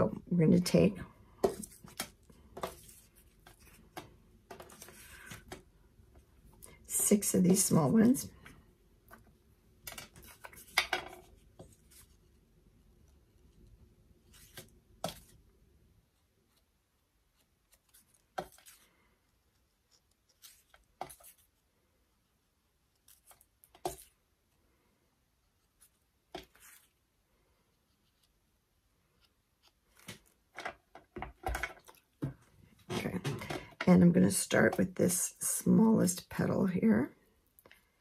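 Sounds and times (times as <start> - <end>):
paper rustling: 1.5 - 5.6.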